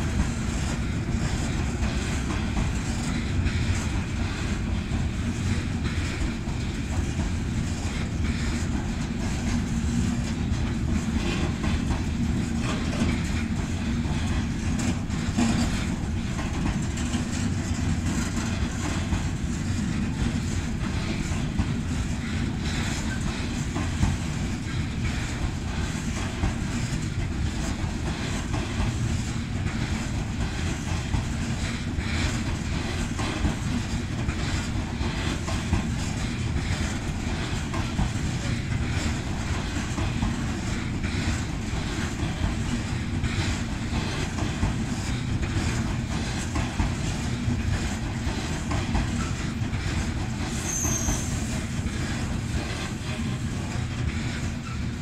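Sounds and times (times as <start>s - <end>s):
freight train rumbling past: 0.0s - 55.0s
wheels clacking over rail joints: 0.0s - 55.0s
high squeak: 50.6s - 51.4s.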